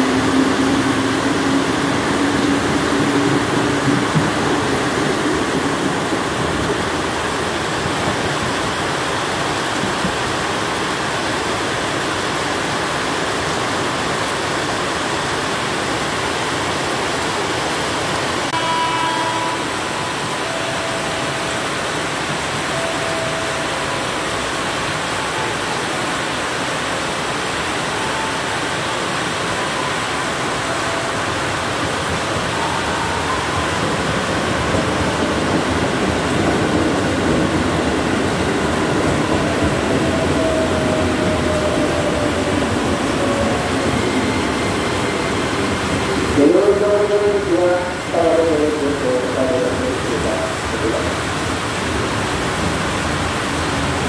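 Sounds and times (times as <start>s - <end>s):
electric train passing: 0.0s - 54.0s
heavy rain pouring: 0.0s - 54.0s
brief high tone: 18.4s - 26.1s, 27.6s - 36.9s.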